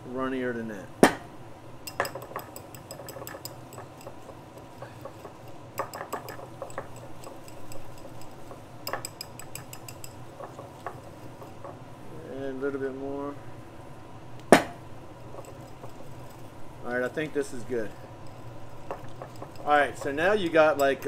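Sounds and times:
whisk clinking against ceramic bowl: 1.8s - 11.8s, 15.3s - 16.5s, 17.9s - 21.0s.

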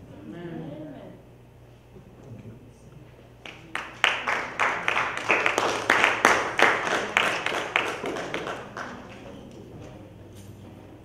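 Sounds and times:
congregation clapping: 3.4s - 9.4s.

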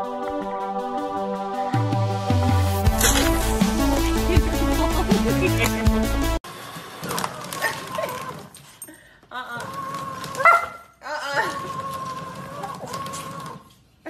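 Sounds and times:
paper shredder motor: 6.4s - 8.6s, 9.5s - 10.4s, 11.3s - 14.0s.

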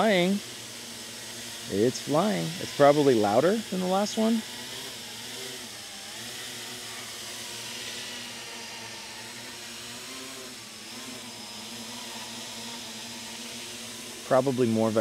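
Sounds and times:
drone motors and propellers humming: 0.0s - 15.0s.

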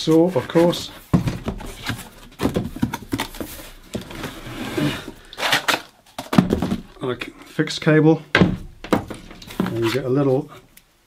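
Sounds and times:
knocks and clunks on a bench: 8.4s - 9.8s.

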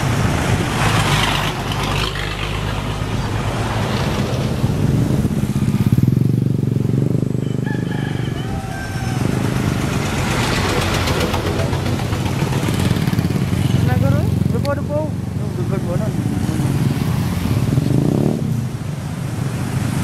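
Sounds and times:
motorcycle passing close: 0.0s - 20.0s
truck engine running: 9.2s - 16.0s.

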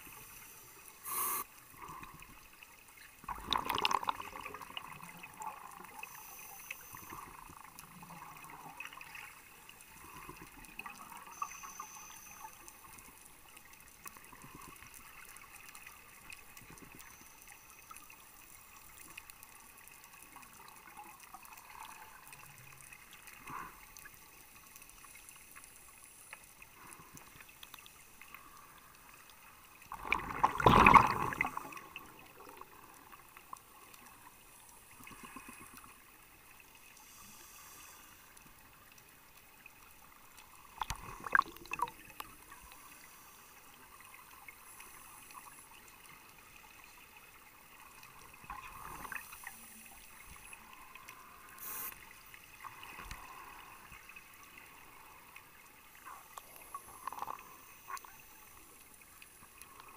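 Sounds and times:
faint underwater hiss: 0.0s - 59.9s
regulator bubbles rushing: 3.3s - 5.5s, 29.9s - 32.8s, 40.8s - 42.1s.

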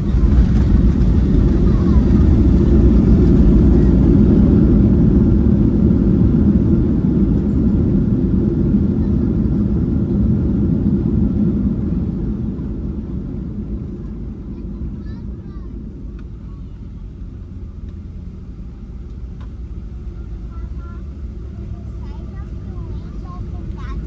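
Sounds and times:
airliner cabin low rumble: 0.0s - 24.0s.

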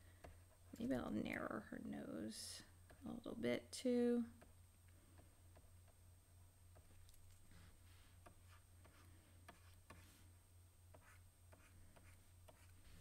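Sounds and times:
low steady hum: 0.0s - 13.0s
stylus scratching on tablet: 7.9s - 10.2s, 10.9s - 13.0s.

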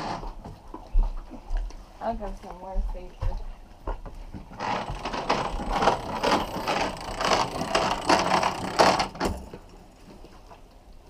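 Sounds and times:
winch ratcheting clicks: 4.6s - 9.6s.

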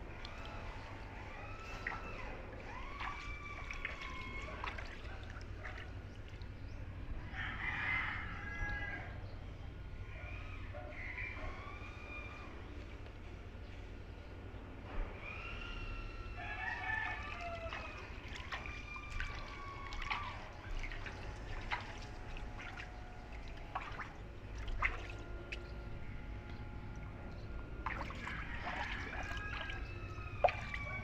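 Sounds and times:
feet splashing in shallow water: 0.0s - 6.8s, 16.4s - 31.0s
roosters crowing: 7.3s - 9.2s, 10.0s - 12.7s, 15.2s - 21.4s, 27.9s - 31.0s.

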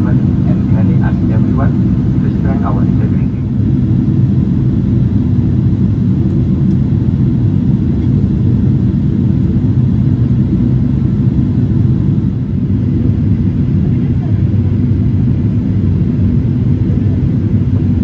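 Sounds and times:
airplane cabin rumble: 0.0s - 18.0s.

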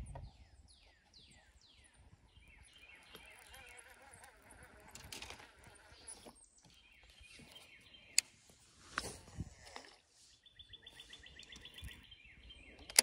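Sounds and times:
faint outdoor background: 0.0s - 13.0s
sharp clicks: 12.8s - 13.0s.

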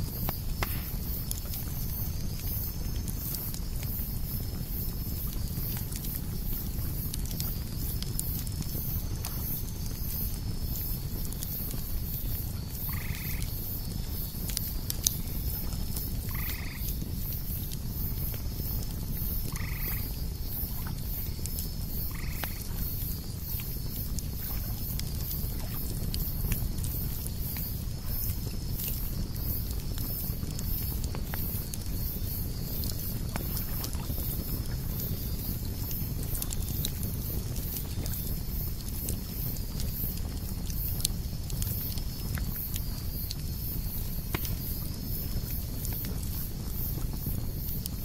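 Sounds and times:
campfire crackling and popping: 0.0s - 48.0s
cicadas pulsing: 0.0s - 48.0s
cicadas buzzing: 12.1s - 24.7s.

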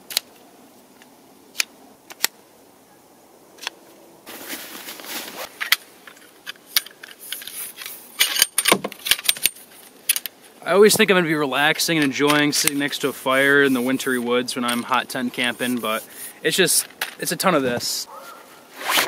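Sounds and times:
nylon fabric rustling: 4.3s - 5.6s.

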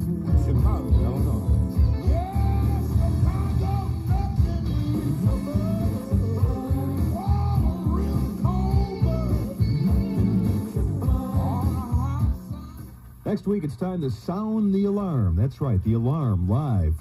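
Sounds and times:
rock music with sung vocal: 0.0s - 13.2s.

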